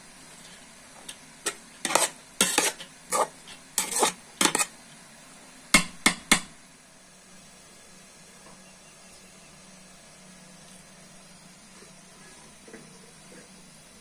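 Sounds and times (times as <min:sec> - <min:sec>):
metal spoon scraping pot: 0:01.4 - 0:04.7.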